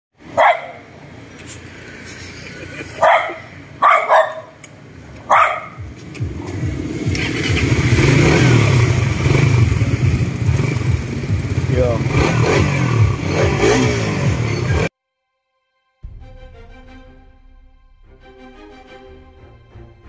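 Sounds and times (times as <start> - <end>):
motorcycle engine: 0.2 - 14.9
dogs barking: 0.3 - 0.9, 2.7 - 4.6, 5.2 - 6.0.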